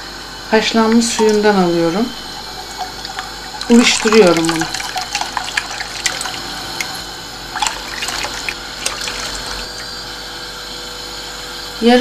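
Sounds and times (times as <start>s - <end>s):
broth pouring into saucepan: 0.6s - 10.1s.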